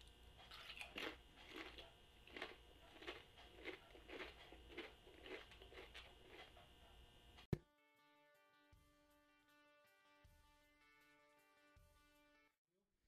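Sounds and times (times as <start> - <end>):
potato chip crunching: 0.4 - 6.6.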